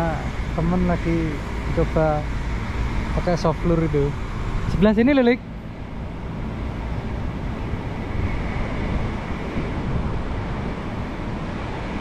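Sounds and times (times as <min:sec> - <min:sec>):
road traffic noise: 0:00.0 - 0:12.0
wind buffeting microphone: 0:00.0 - 0:12.0.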